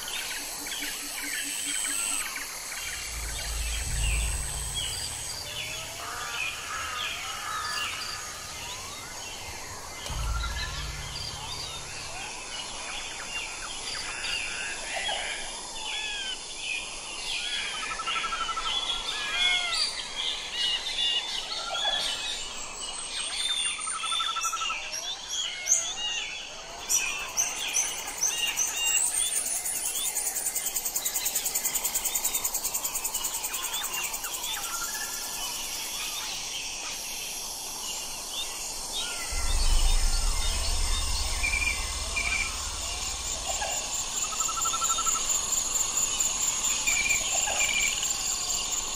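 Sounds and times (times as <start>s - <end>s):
high insect trill: 0.0s - 14.7s, 27.0s - 48.9s
birds chirping: 1.8s - 14.0s
low steady hum: 2.7s - 13.7s, 39.2s - 47.0s.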